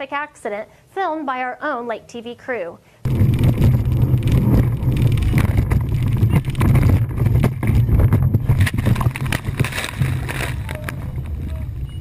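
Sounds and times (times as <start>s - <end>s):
motorboat engine and water rumble: 3.1s - 12.0s
wind buffeting the microphone: 3.1s - 12.0s.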